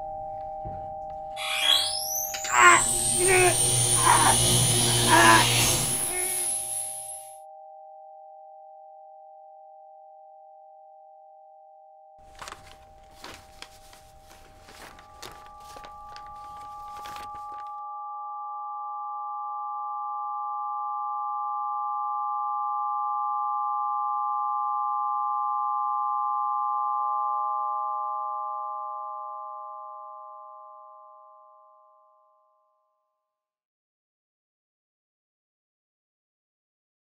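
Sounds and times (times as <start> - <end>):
electronic drone tones: 1.4 - 7.4.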